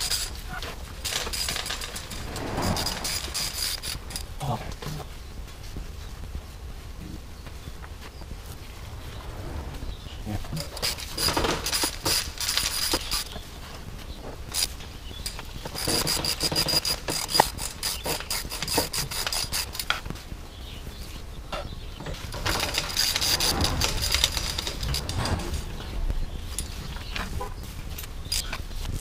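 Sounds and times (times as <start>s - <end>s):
hand ratchet clicking: 15.3s - 19.9s.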